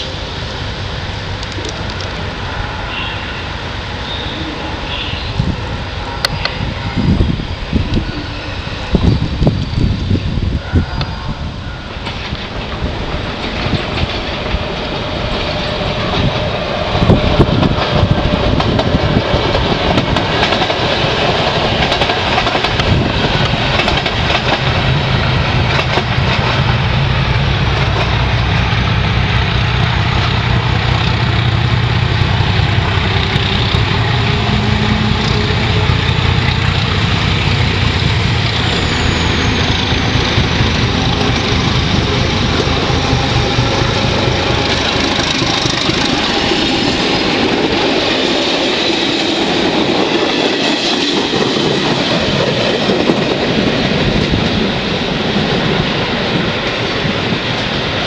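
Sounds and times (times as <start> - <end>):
diesel locomotive engine humming: 0.0 - 58.0
train wheels clattering on rails: 11.9 - 58.0.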